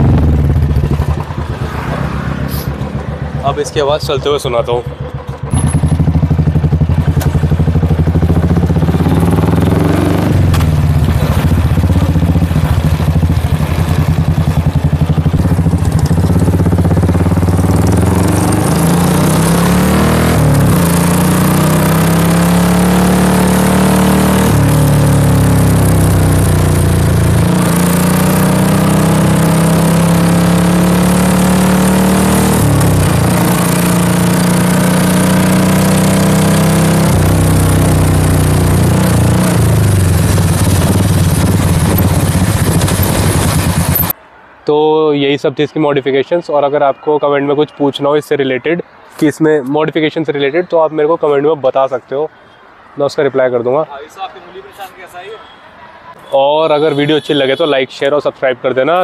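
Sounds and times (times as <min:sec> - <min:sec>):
motorcycle engine deep exhaust: 0:00.0 - 0:44.2.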